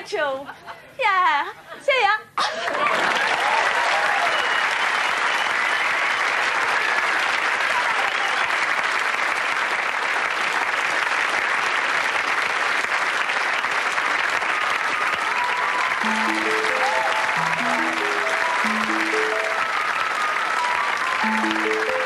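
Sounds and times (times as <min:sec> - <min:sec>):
audience applauding: 0:02.4 - 0:22.0
plucked string instrument runs: 0:16.0 - 0:19.8.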